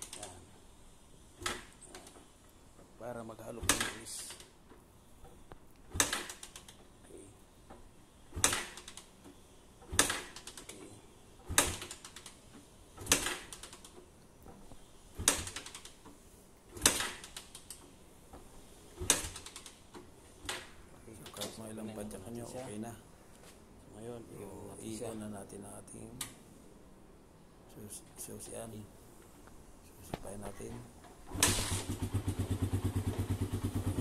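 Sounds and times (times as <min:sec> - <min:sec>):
motorcycle kickstarter clacking: 0:03.6 - 0:04.5, 0:05.2 - 0:06.8, 0:07.7 - 0:09.1, 0:09.8 - 0:10.8, 0:13.0 - 0:14.6
engine turning over: 0:31.3 - 0:34.0.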